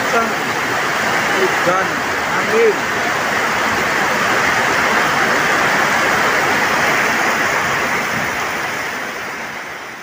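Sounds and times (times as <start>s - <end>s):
heavy rain on a wet road: 0.0s - 10.0s.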